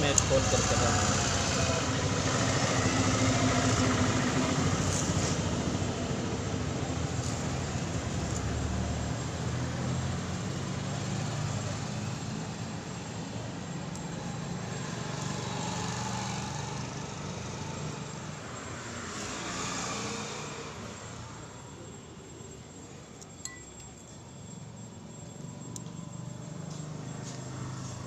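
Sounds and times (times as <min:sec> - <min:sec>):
engine and traffic rumble: 0:00.0 - 0:28.0.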